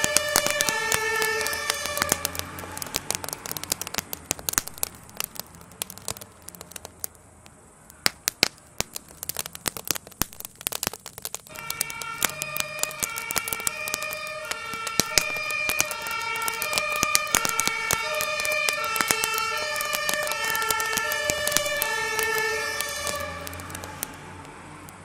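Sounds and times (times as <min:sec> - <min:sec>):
two-tone emergency sirens: 0:00.0 - 0:03.8, 0:11.5 - 0:24.7
fire crackling and popping: 0:00.0 - 0:25.0.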